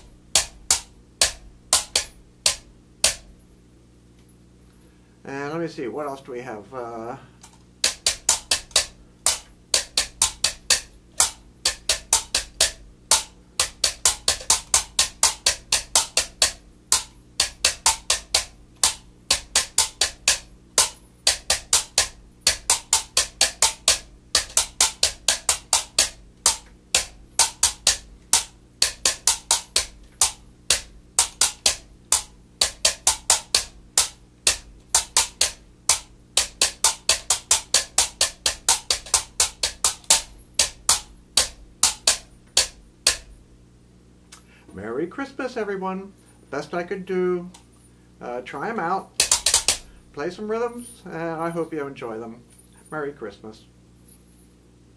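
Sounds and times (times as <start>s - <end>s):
hollow knocks of bamboo tubes: 0.0s - 3.2s, 7.8s - 43.4s, 49.2s - 49.9s.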